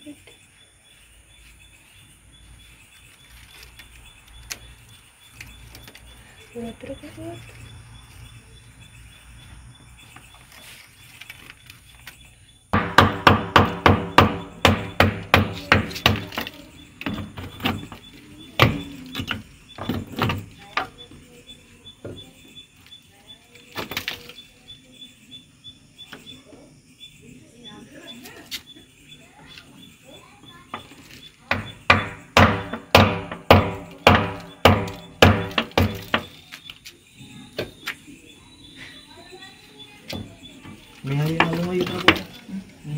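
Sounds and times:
hard ringing knocks: 12.7s - 21.0s, 30.7s - 36.4s
hammer striking concrete: 12.8s - 20.9s, 30.7s - 36.4s, 41.2s - 42.3s.

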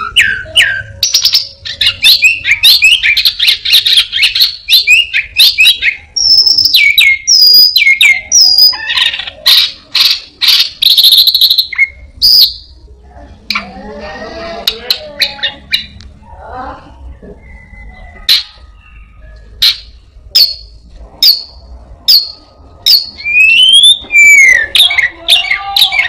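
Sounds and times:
lower-pitched bird call: 22.1s - 26.0s.

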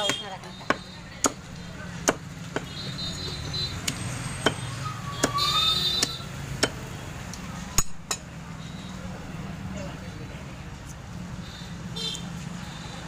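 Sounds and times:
knife chopping bone on wood: 0.0s - 2.7s, 3.8s - 6.8s.

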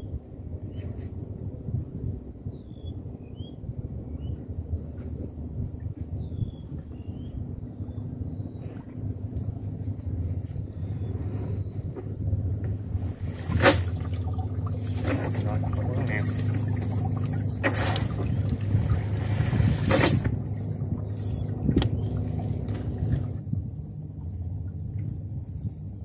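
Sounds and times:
boat engine idling: 4.0s - 25.4s
sharp splashes or knocks: 13.2s - 20.6s
water pouring off net: 13.3s - 20.2s.

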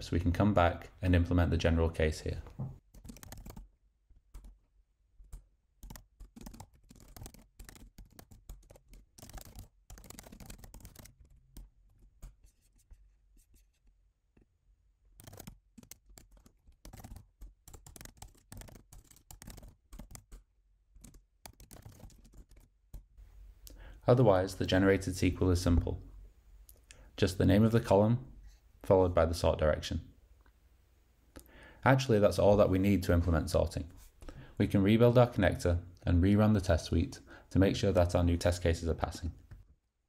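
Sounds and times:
computer keyboard typing: 2.8s - 3.7s, 5.3s - 12.4s, 15.2s - 23.1s.

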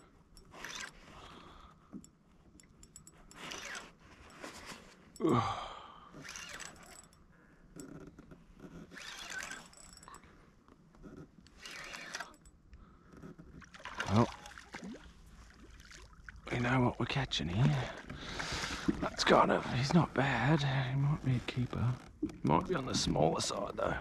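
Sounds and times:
man groaning: 5.2s - 5.8s
man breathing hard: 5.2s - 6.2s.

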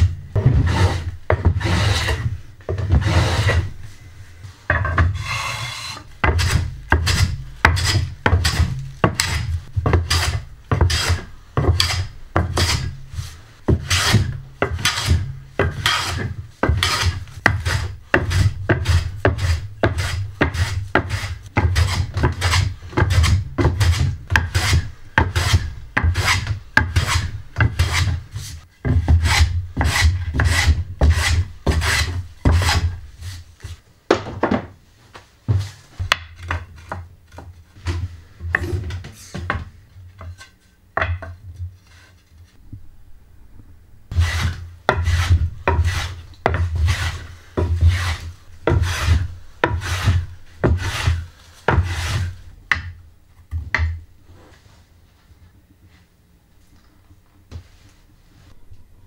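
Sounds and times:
hand plane rasping strokes: 0.4s - 3.8s, 5.0s - 33.4s, 44.1s - 52.4s.

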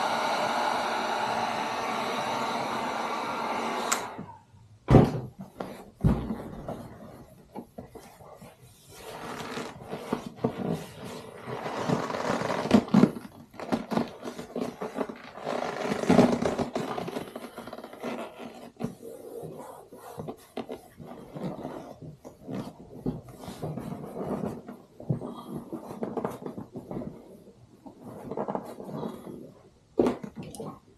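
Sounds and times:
heat gun blowing: 0.0s - 4.4s
vinyl rubbing and scraping: 5.4s - 29.8s.

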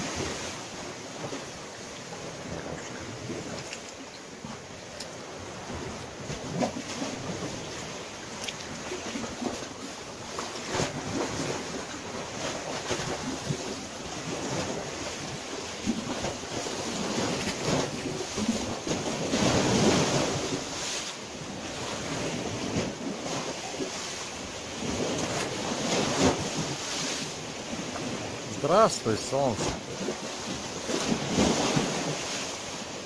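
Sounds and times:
small waves washing on beach: 0.0s - 33.0s
wind rumbling on microphone: 0.0s - 33.0s.

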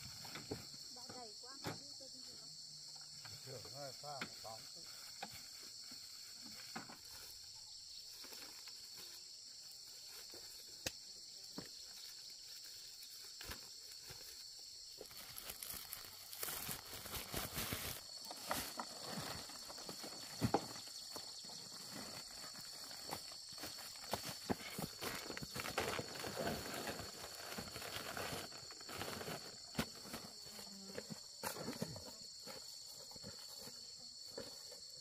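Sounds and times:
high-pitched insect chorus: 0.0s - 35.0s
dry stalks and sacks rustling: 11.8s - 34.8s
corn cobs dropping into sack: 15.2s - 21.0s.

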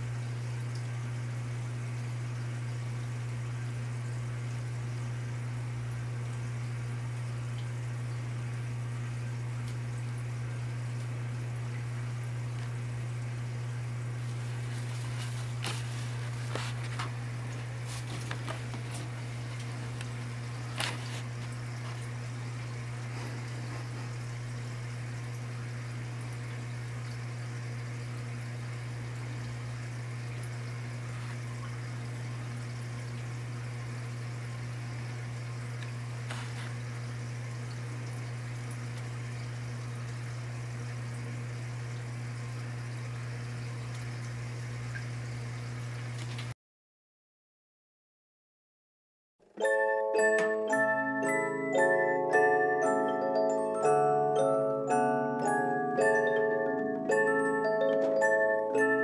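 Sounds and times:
steady low hum: 0.0s - 32.8s
animal rustling in paper bedding: 14.2s - 22.1s.

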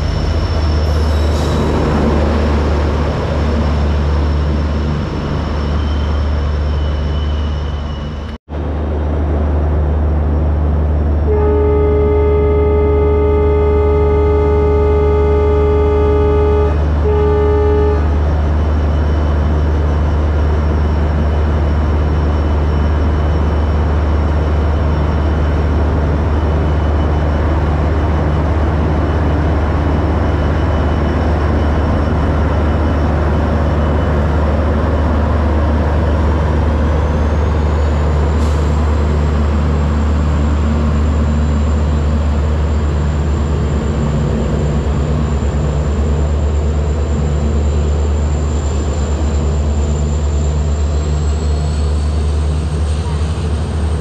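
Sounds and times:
train rolling past rumble: 0.0s - 54.0s
locomotive horn blast: 11.2s - 18.3s.

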